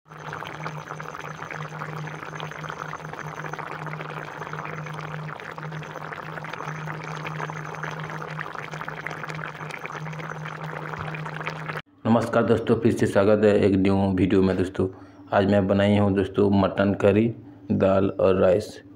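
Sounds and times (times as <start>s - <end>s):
curry bubbling in a pot: 0.0s - 11.9s.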